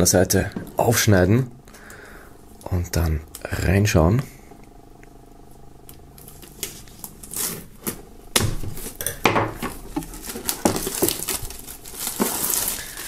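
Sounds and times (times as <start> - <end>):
plastic wrap crinkling: 6.2 - 13.0
knife slitting plastic film: 6.4 - 8.0, 10.0 - 13.0.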